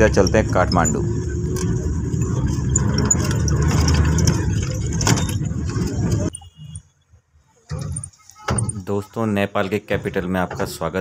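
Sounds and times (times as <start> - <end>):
light rattles and clicks: 0.0 - 6.3
bus engine and road rumble: 0.0 - 11.0.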